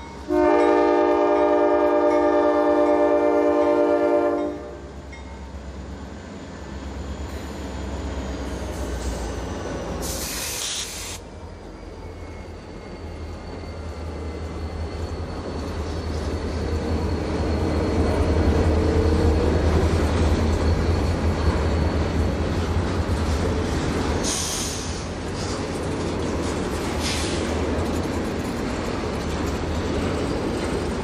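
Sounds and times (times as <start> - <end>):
diesel locomotive rumbling: 0.0 - 31.0
freight cars running on rails: 0.0 - 31.0
brief hiss: 10.0 - 11.2.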